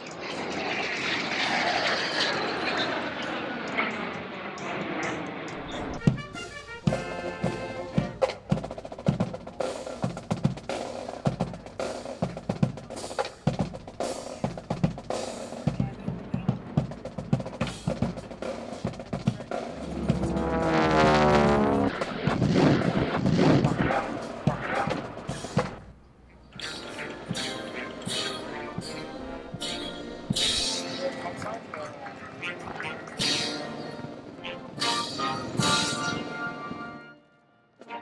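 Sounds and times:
military band music: 0:05.6 - 0:25.8, 0:26.6 - 0:31.7, 0:32.4 - 0:37.2
snare drum rolls: 0:05.6 - 0:25.9
loud rushing sweep: 0:18.2 - 0:25.7.

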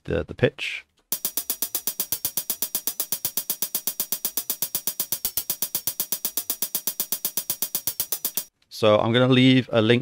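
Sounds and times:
hi-hat loop: 0:01.1 - 0:08.5.

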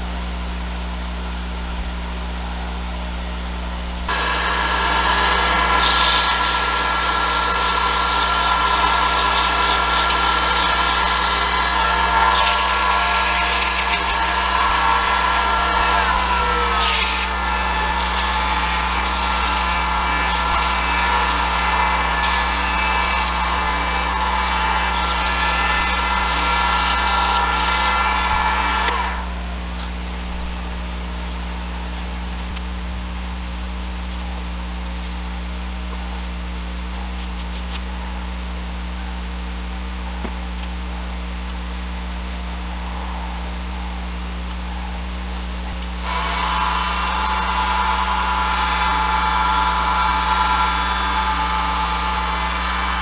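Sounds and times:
lathe motor humming: 0:04.0 - 0:53.0
sandpaper hissing on spinning wood: 0:04.1 - 0:29.2, 0:32.8 - 0:37.8, 0:40.9 - 0:53.0.

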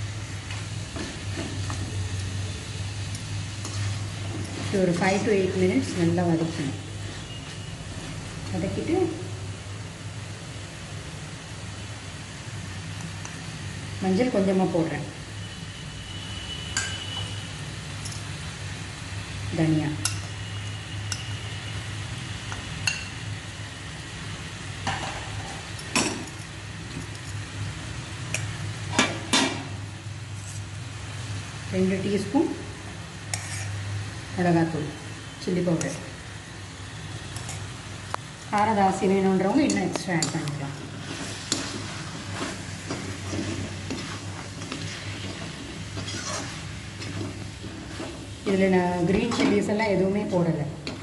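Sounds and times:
chicken sizzling in a metal pan: 0:00.0 - 0:07.7, 0:08.7 - 0:50.2
metal ladle scraping a pan: 0:33.3 - 0:33.8, 0:39.7 - 0:48.4.

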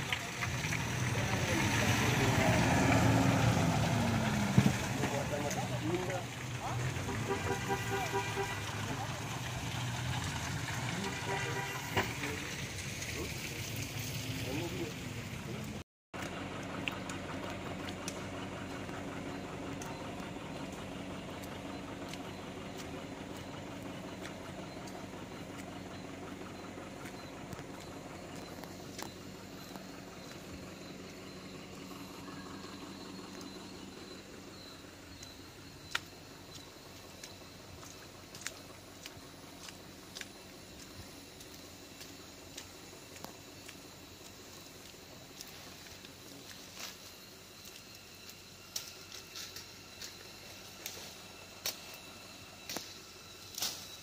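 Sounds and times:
truck engine idling: 0:00.0 - 0:54.0
footsteps squelching in mud: 0:16.2 - 0:33.9, 0:35.1 - 0:50.7.

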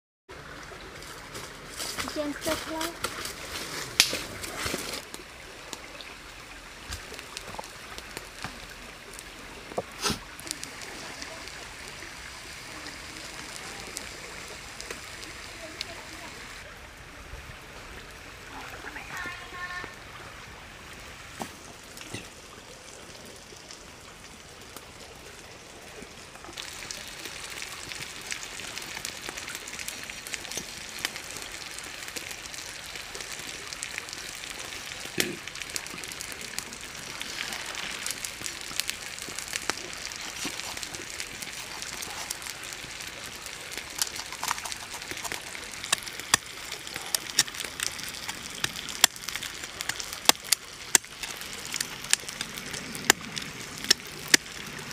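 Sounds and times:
steady hiss: 0:01.0 - 0:22.6.

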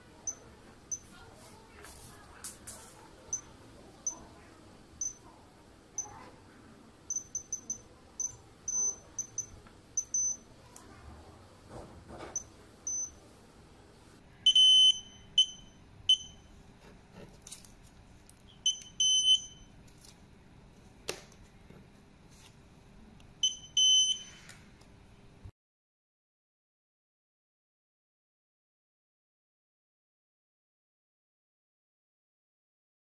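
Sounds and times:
keypad beeping: 0:00.2 - 0:01.2, 0:03.3 - 0:04.3, 0:05.0 - 0:05.2, 0:06.0 - 0:06.2, 0:07.1 - 0:10.5, 0:12.4 - 0:13.2, 0:14.5 - 0:16.4, 0:18.6 - 0:19.7, 0:23.4 - 0:24.4.

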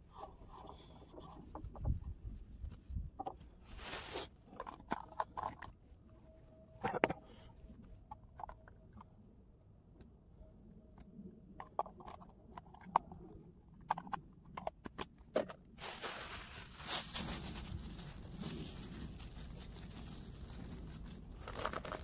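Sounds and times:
small objects clicking and knocking: 0:21.4 - 0:22.0.

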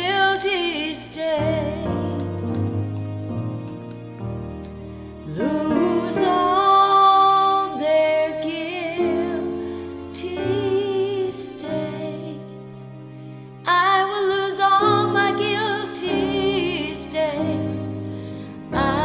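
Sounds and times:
woman singing a hymn: 0:00.0 - 0:02.7, 0:05.3 - 0:12.9, 0:13.6 - 0:18.0, 0:18.7 - 0:19.0
held accompaniment chords: 0:00.0 - 0:19.0.

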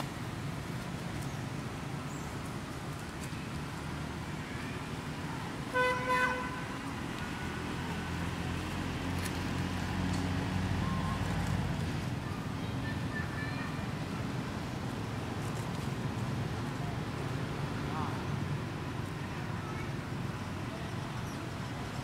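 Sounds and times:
traffic rumble: 0:00.0 - 0:22.0
vehicle horn tooting: 0:05.7 - 0:06.6.

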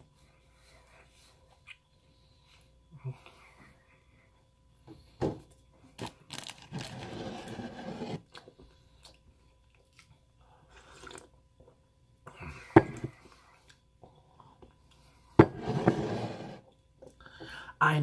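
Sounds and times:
plastic container crinkling: 0:06.0 - 0:07.2.

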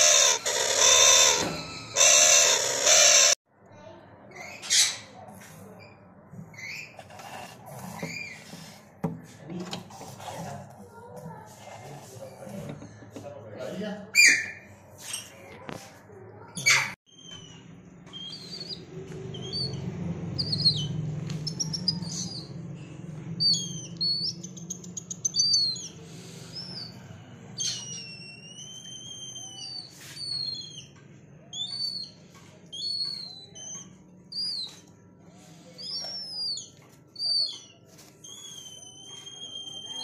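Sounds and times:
birds chirping and whistling: 0:00.0 - 0:03.4, 0:05.9 - 0:07.2, 0:16.6 - 0:34.9, 0:35.5 - 0:40.0.

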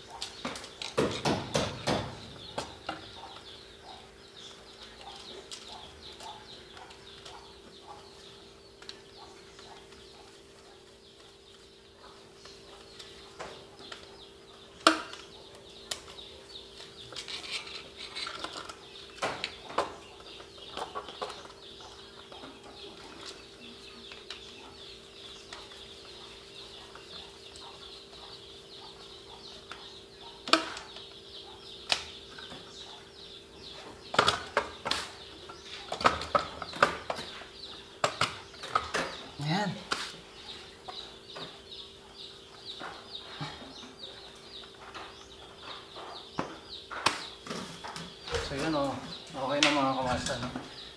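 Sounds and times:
tool clicking and knocking on metal box: 0:00.2 - 0:03.5.

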